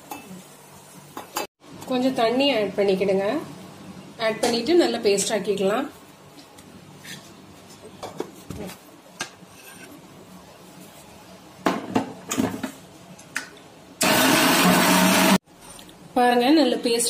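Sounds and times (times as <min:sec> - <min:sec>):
mixer grinder motor running: 0:14.0 - 0:15.4.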